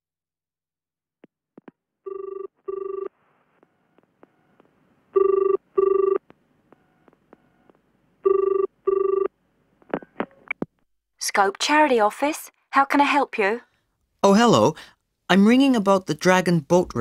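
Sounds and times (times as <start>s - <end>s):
telephone ringing: 2.1s - 3.1s, 5.2s - 6.2s, 8.2s - 9.3s.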